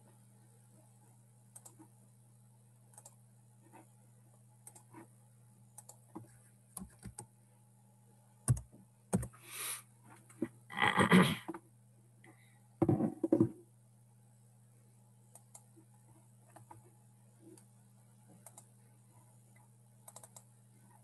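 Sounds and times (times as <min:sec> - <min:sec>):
faint electrical hum: 0:00.0 - 0:21.0
computer mouse clicks: 0:01.5 - 0:01.9, 0:02.9 - 0:03.8, 0:04.6 - 0:05.1, 0:05.7 - 0:07.3, 0:15.3 - 0:15.7, 0:16.5 - 0:16.8, 0:17.5 - 0:17.7, 0:18.3 - 0:18.7, 0:19.5 - 0:20.5
keyboard keystrokes: 0:08.5 - 0:09.3, 0:20.1 - 0:20.4.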